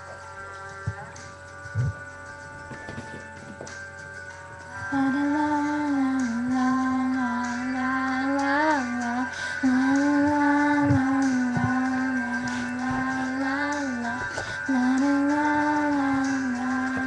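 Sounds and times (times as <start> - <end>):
young female voice singing: 4.9 - 17.0.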